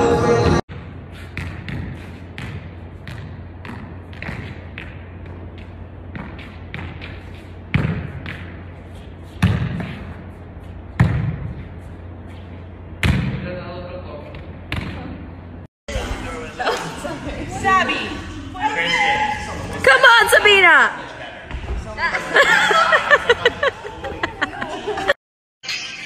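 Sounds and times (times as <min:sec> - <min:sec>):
soccer ball thumping: 0:01.4 - 0:08.8, 0:09.4 - 0:10.3, 0:11.0 - 0:11.8, 0:13.0 - 0:13.4.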